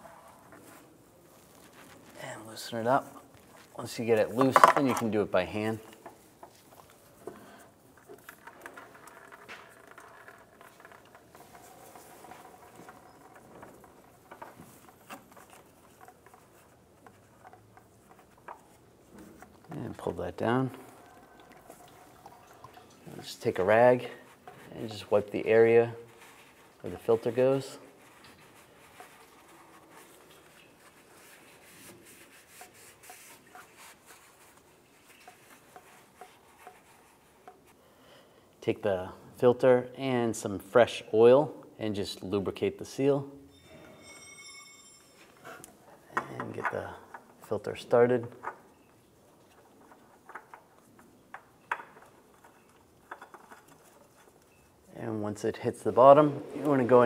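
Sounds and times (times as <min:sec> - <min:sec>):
oil dripping into bucket: 0:20.8 - 0:23.1.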